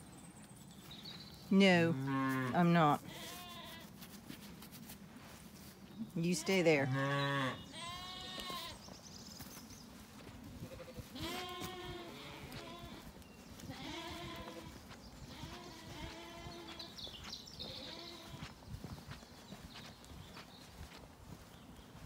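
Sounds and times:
sheep bleating: 0:02.0 - 0:03.9, 0:06.4 - 0:08.8, 0:10.6 - 0:16.9, 0:17.7 - 0:18.5.

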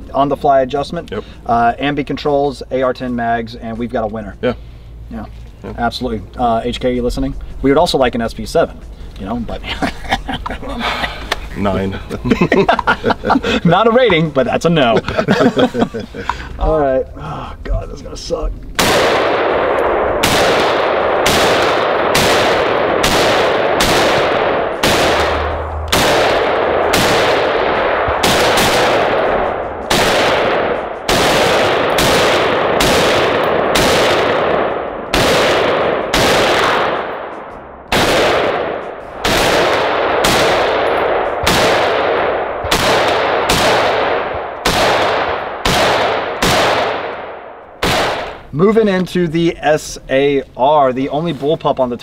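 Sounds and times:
rifle shots echoing: 0:18.8 - 0:48.5.

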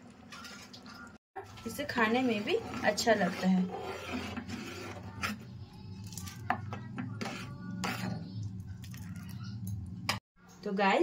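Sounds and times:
metal ladle stirring in pot: 0:01.4 - 0:09.6.

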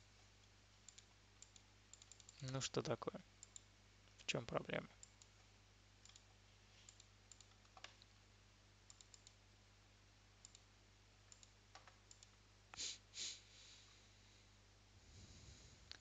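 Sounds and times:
low steady hum: 0:00.0 - 0:16.0
computer mouse clicks: 0:00.8 - 0:02.6, 0:03.4 - 0:04.2, 0:05.0 - 0:08.1, 0:08.9 - 0:09.4, 0:10.4 - 0:10.7, 0:11.3 - 0:12.4.

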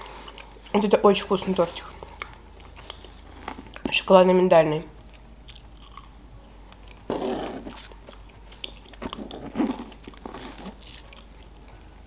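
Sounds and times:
chewing cake: 0:01.9 - 0:03.9, 0:05.1 - 0:11.8.

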